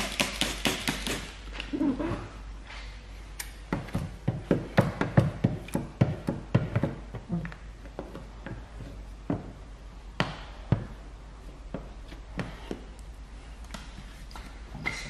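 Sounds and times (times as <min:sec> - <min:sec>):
squeegee knocks and thuds: 0:03.7 - 0:07.3.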